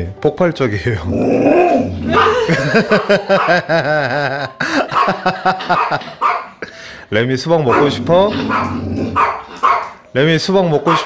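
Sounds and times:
dog vocal calls: 7.7s - 10.0s.

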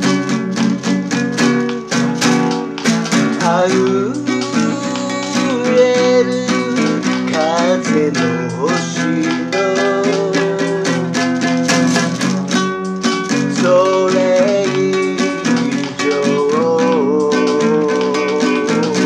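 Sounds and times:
nylon-string guitar strumming chords: 0.0s - 19.0s
man singing a ballad: 3.4s - 11.3s, 13.4s - 19.0s.

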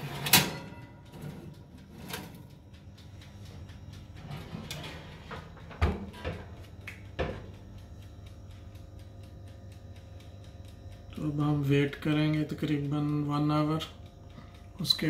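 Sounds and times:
low hum: 0.0s - 15.0s
oven door thumps: 4.3s - 6.6s, 7.2s - 7.5s.

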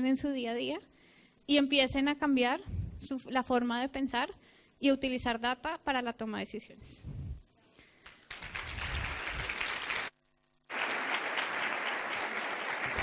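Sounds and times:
audience applauding: 8.0s - 13.0s.

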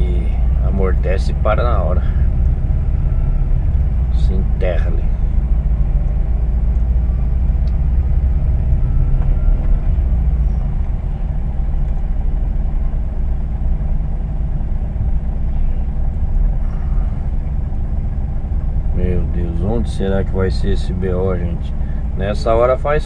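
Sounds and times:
diesel truck engine idling low: 0.0s - 23.0s.

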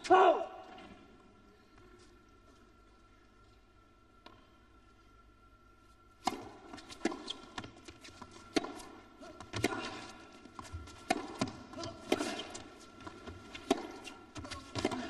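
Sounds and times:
racket hitting tennis ball: 6.2s - 15.0s
tennis ball bouncing on court: 6.2s - 15.0s.

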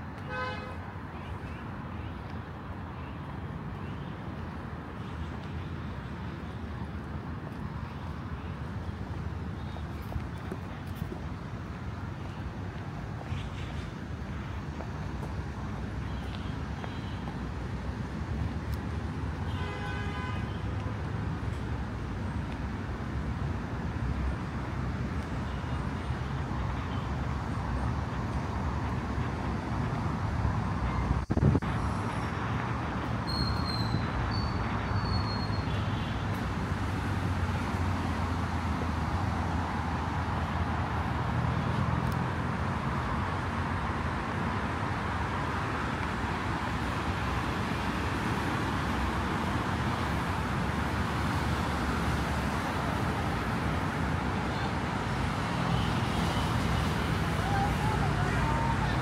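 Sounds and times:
road traffic: 0.0s - 59.0s
car horn toot: 0.2s - 0.8s.

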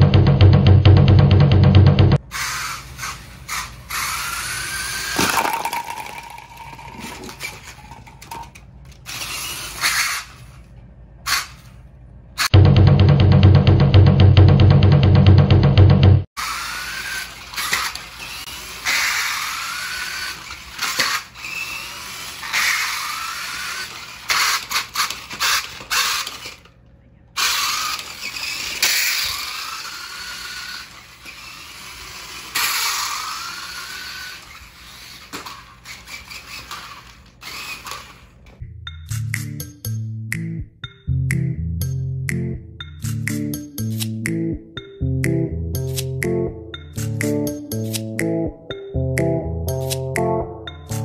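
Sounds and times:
toy truck motor whining: 2.3s - 6.2s, 7.0s - 10.6s, 16.4s - 26.8s, 27.4s - 38.6s.

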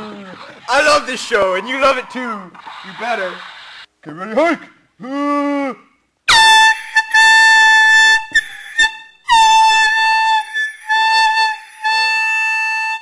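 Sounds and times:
air horn blasts: 6.3s - 13.0s.

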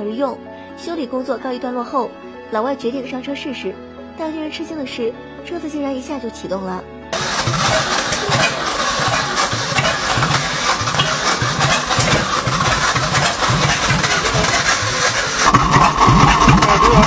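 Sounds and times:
pickup engine running rough: 7.2s - 17.0s.

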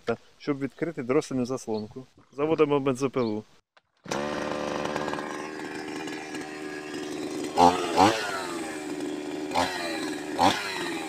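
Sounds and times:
chainsaw engine running and revving: 4.0s - 11.0s.

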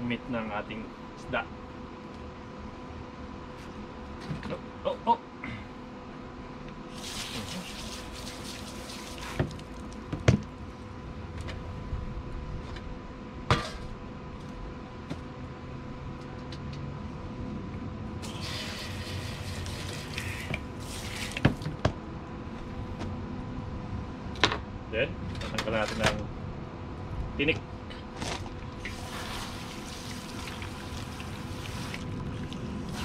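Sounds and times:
hose nozzle spraying water: 6.9s - 9.7s, 18.2s - 21.4s, 28.8s - 32.0s.

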